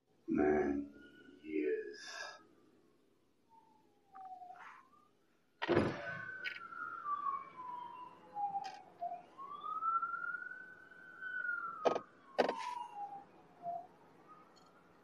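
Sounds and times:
siren wailing: 0:03.5 - 0:15.0.

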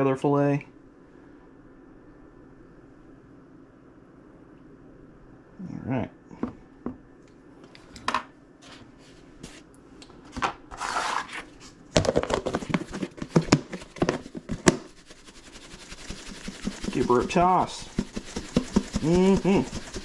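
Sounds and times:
plastic tub knocking: 0:12.0 - 0:14.9, 0:16.4 - 0:20.0
breading rustling in tub: 0:12.5 - 0:20.0.

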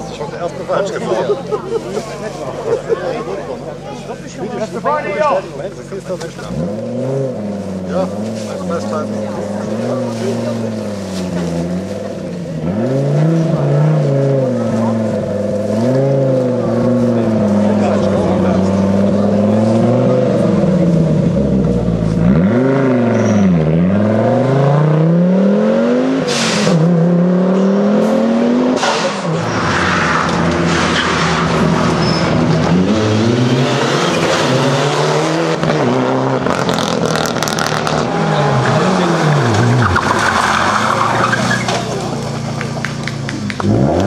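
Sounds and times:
rally car engines revving: 0:00.0 - 0:44.0
sharp crack: 0:28.8 - 0:32.0
tyres squealing and scrabbling: 0:29.2 - 0:32.6, 0:37.9 - 0:42.5.

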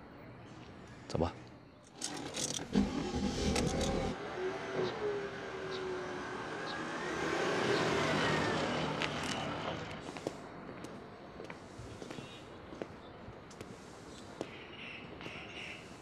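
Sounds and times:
car passing by: 0:03.8 - 0:10.3.

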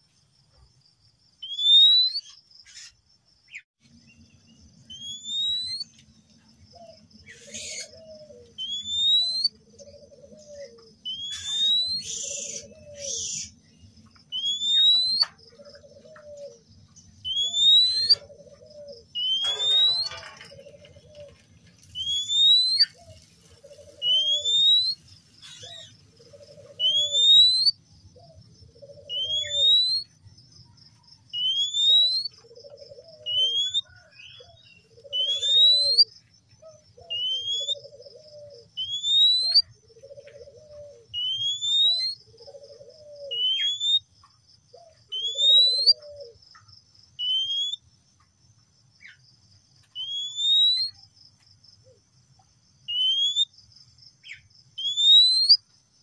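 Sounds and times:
bird rising whistle call: 0:08.6 - 0:09.5, 0:11.1 - 0:13.5, 0:17.2 - 0:18.2, 0:22.0 - 0:23.0, 0:24.0 - 0:25.0, 0:26.8 - 0:27.8, 0:29.1 - 0:30.1, 0:35.1 - 0:36.1.

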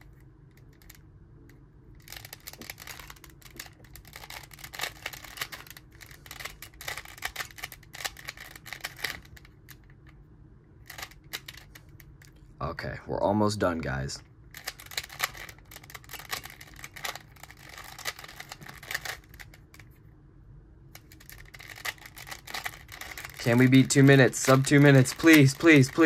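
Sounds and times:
puzzle cube clicking: 0:14.6 - 0:19.8, 0:21.0 - 0:26.0.

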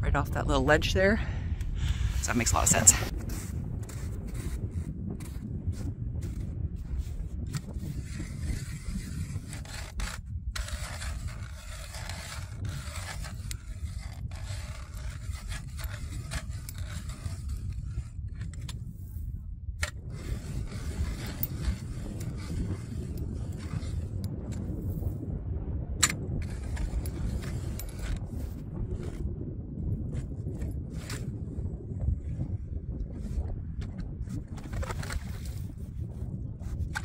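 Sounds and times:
ice auger scraping and grinding: 0:02.0 - 0:18.8, 0:19.8 - 0:25.0, 0:26.0 - 0:29.2, 0:30.1 - 0:31.3, 0:33.2 - 0:35.9, 0:36.6 - 0:37.0.

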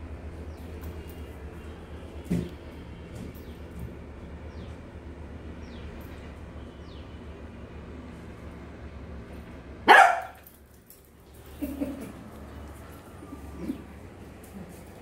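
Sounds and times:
puppy barking: 0:09.9 - 0:10.5.

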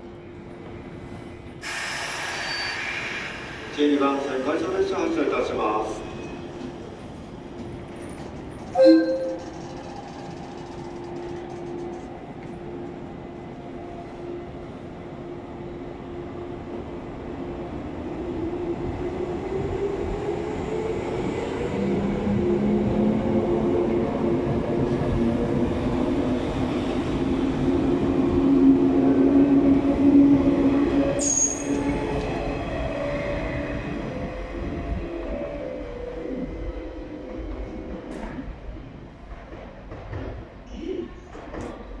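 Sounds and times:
train cars running noise: 0:00.5 - 0:15.0, 0:21.8 - 0:42.0
high wheel squeal: 0:31.2 - 0:31.9.

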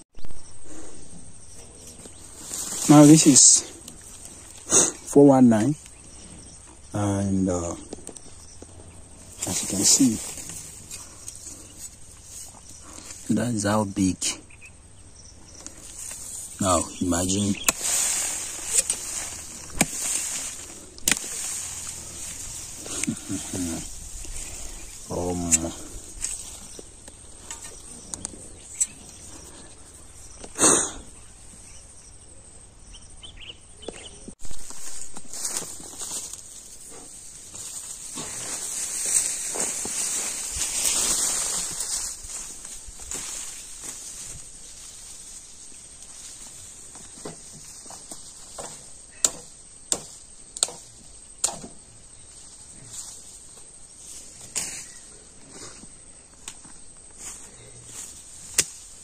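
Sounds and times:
insects chirring: 0:00.2 - 0:59.0
machete chopping plants: 0:17.6 - 0:22.0, 0:48.6 - 0:51.8, 0:58.4 - 0:59.0.

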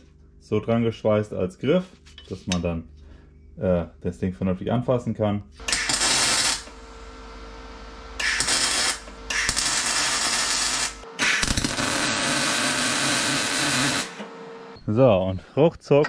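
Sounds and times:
welding arc crackling hiss: 0:05.6 - 0:14.2
welder humming: 0:05.6 - 0:14.8.

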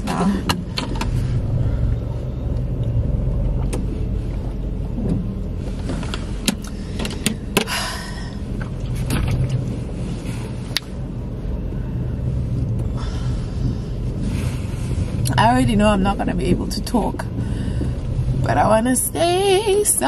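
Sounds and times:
car rumble inside cabin: 0:00.0 - 0:20.0
light clicks and knocks: 0:05.0 - 0:07.8.

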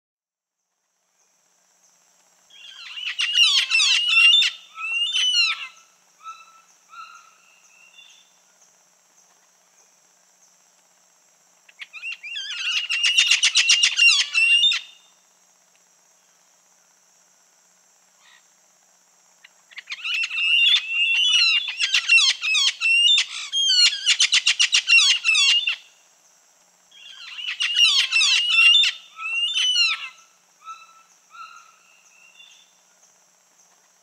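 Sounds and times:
parrot calling harshly: 0:02.8 - 0:06.4, 0:11.9 - 0:14.8, 0:19.9 - 0:25.8, 0:27.1 - 0:30.8.

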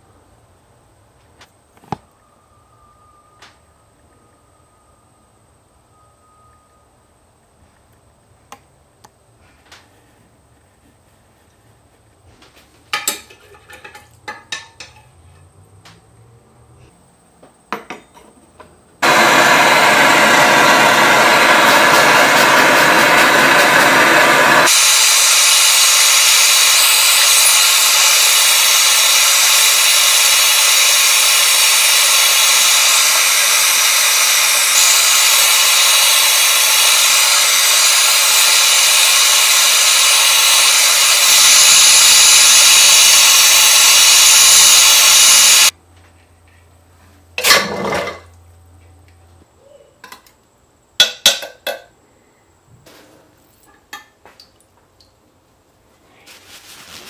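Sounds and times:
gas torch flame hissing: 0:19.0 - 0:45.7.

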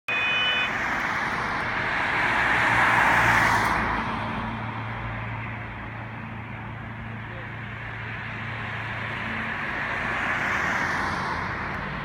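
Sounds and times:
car passing by: 0:00.6 - 0:04.8, 0:08.0 - 0:12.0.

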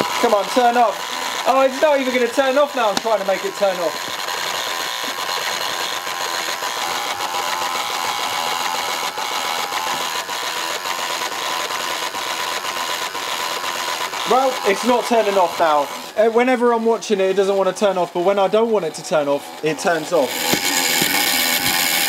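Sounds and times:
relays clicking rapidly: 0:00.0 - 0:22.0.

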